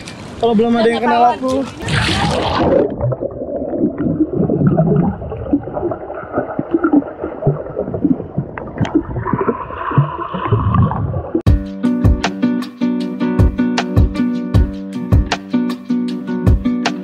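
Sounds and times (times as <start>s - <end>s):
crackles of moving water: 0.0s - 11.5s
muffled underwater bubbling: 1.8s - 11.5s.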